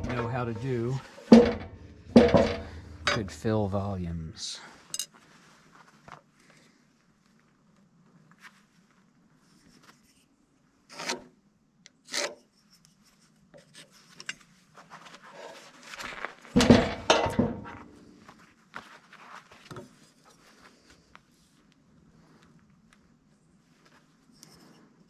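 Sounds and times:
heavy knock and rubbing: 0.0s - 3.4s, 16.6s - 18.0s
timber block scraping: 0.0s - 3.4s.

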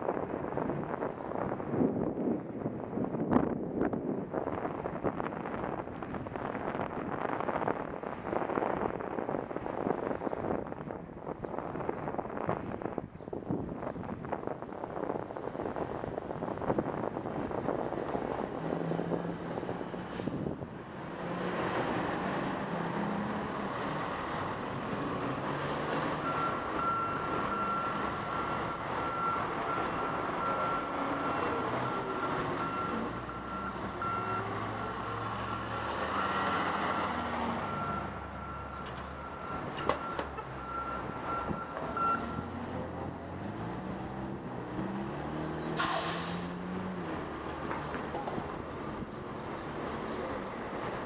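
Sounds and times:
street traffic noise: 0.0s - 51.0s
reversing alarm beeping: 37.7s - 42.5s
short loud hiss: 45.8s - 46.5s.

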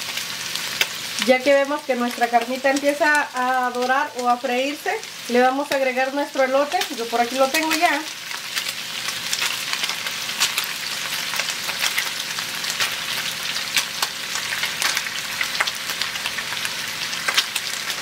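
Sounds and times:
beef sizzling in oil: 0.0s - 18.0s.

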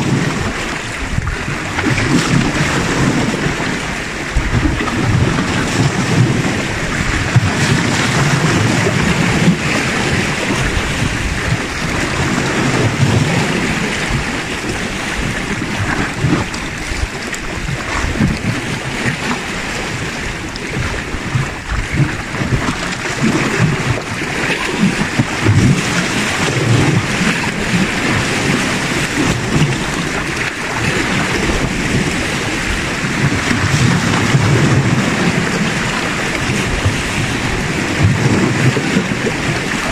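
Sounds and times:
waves splashing against rocks: 0.0s - 39.9s
wind buffeting microphone: 0.0s - 39.9s.

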